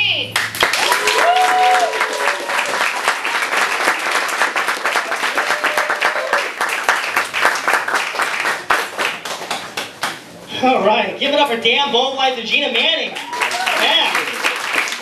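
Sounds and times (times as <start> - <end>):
crowd clapping: 0.4 - 10.3, 13.2 - 15.0.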